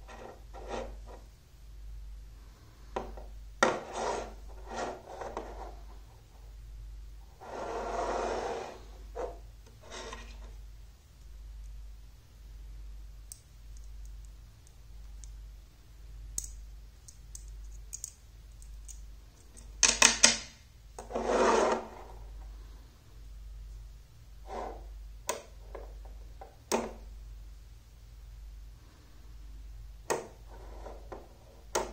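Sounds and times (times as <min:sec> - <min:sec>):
metal scraping rub: 0:03.7 - 0:05.8, 0:07.4 - 0:10.6, 0:21.0 - 0:22.1
magnetic rods and balls clicking: 0:16.3 - 0:20.4.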